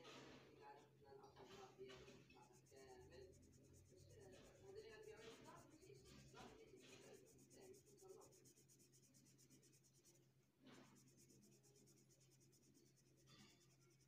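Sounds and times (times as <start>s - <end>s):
marker scratching on paper: 2.0s - 14.0s.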